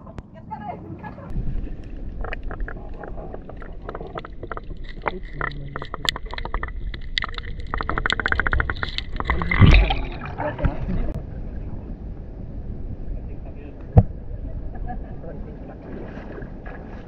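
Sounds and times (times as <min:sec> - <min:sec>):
underwater clicks and crackles: 0:01.3 - 0:11.2
muffled underwater rumble: 0:01.3 - 0:17.0.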